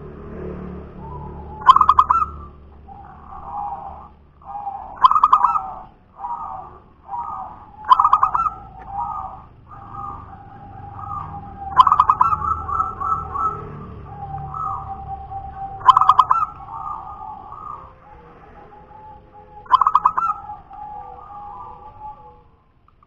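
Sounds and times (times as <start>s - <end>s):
dove cooing: 1.0s - 22.7s.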